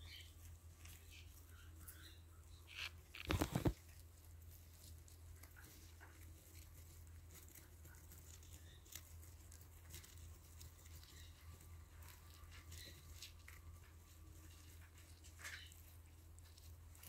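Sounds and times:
hamsters nibbling: 0.0 - 17.0
low steady hum: 0.0 - 17.0.

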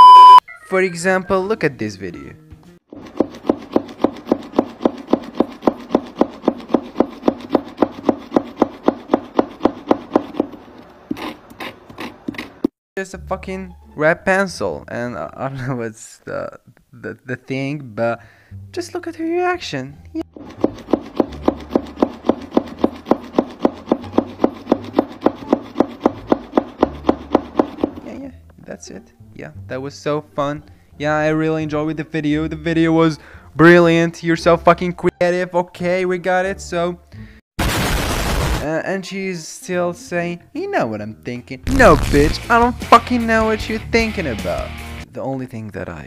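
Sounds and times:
marker tapping on paper: 3.1 - 10.5, 20.4 - 28.0.

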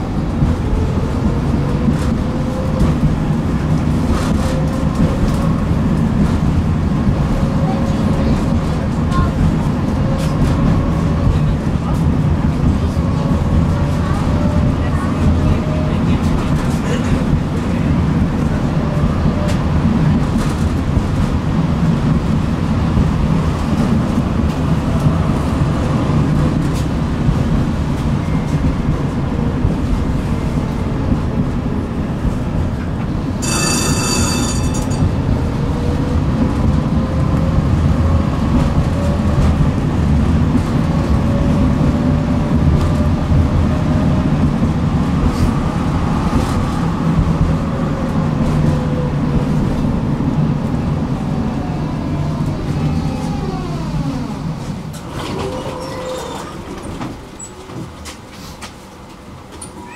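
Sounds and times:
tram rumbling on rails: 0.0 - 59.9
high ringing tone: 33.4 - 35.1.

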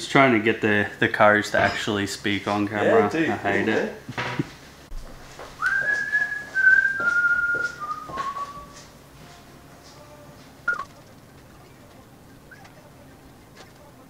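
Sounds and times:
person whistling a tune: 5.6 - 8.8.

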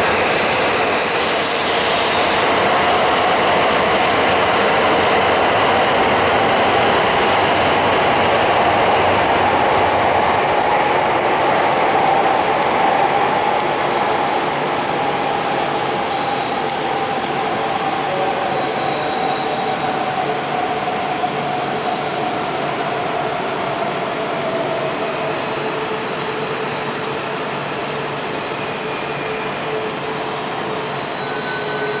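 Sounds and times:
train wheel and rail noise: 0.0 - 32.0
train whine dropping in pitch: 28.3 - 32.0.

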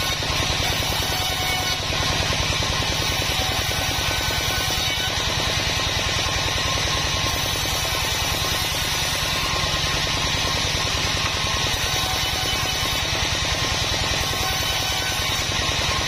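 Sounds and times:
band saw ripping wood: 0.0 - 16.0.

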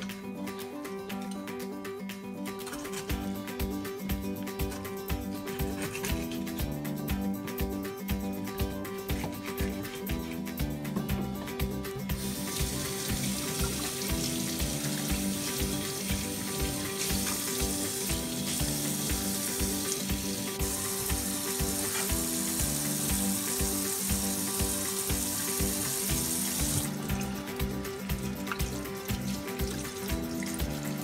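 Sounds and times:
background music with steady beat: 0.0 - 31.0
tap water running into sink: 12.1 - 31.0.

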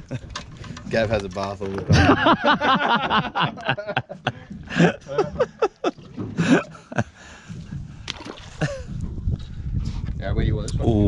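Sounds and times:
sharp clicks and knocks: 0.2 - 1.9
people laughing: 1.9 - 7.2, 8.6 - 8.9.

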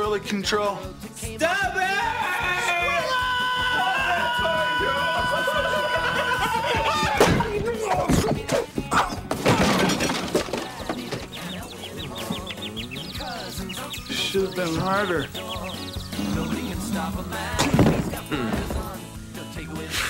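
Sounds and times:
loud crashes and breaking impacts: 9.2 - 11.3, 17.5 - 18.9.

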